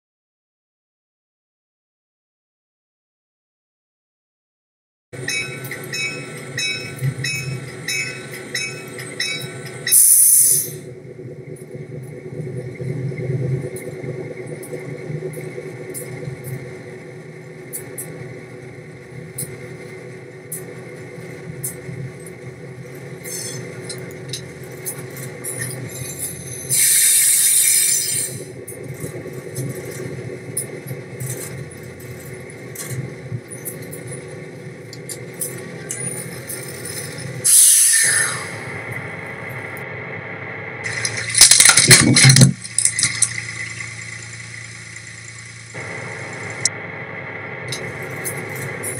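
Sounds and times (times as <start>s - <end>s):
locomotive bell ringing: 5.2s - 11.0s
diesel engine running: 5.2s - 48.9s
loud air hiss: 26.7s - 28.4s, 37.4s - 38.7s.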